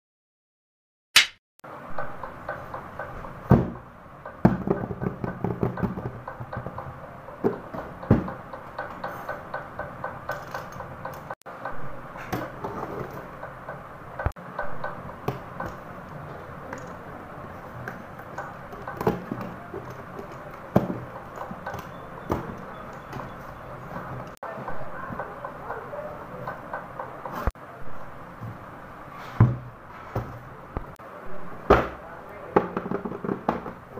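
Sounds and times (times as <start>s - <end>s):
knocks and clicks against box: 1.9s - 17.1s, 17.8s - 25.8s.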